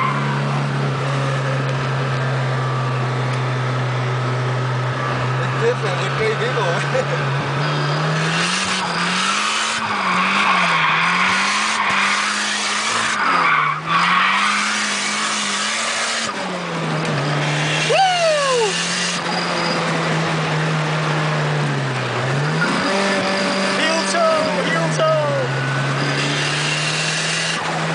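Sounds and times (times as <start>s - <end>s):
car engine revving: 0.0s - 27.9s
tyre squeal: 7.6s - 20.3s, 22.4s - 27.7s.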